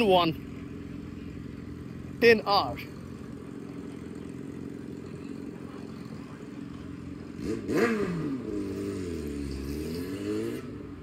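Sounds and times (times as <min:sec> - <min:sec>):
motorcycle engine revving: 0:00.0 - 0:11.0.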